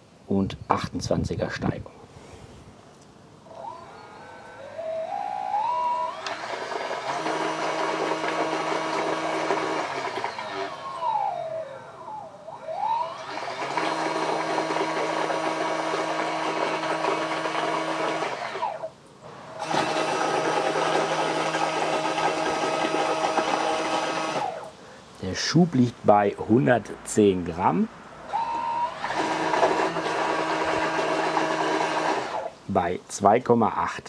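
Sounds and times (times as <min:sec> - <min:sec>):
electric motor whining: 0:03.4 - 0:24.8, 0:28.3 - 0:32.6.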